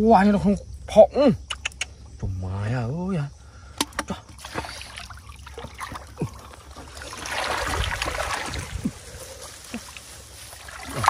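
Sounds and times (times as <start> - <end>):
water splashing: 4.0 - 11.0.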